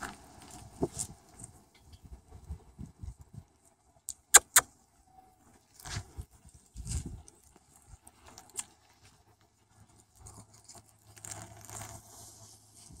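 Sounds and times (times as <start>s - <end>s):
puppies rustling through grass: 5.7s - 13.0s.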